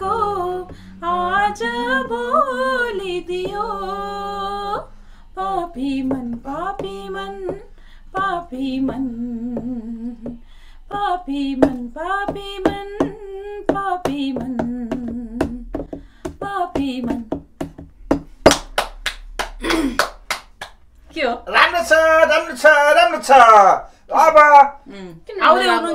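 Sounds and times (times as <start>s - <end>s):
woman singing unaccompanied: 0.0s - 17.6s, 25.0s - 25.9s
hand claps: 16.3s - 20.9s.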